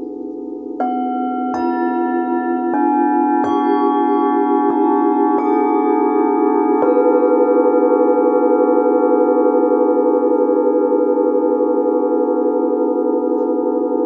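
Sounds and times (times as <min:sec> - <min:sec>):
singing bowls ringing: 0:00.0 - 0:14.0.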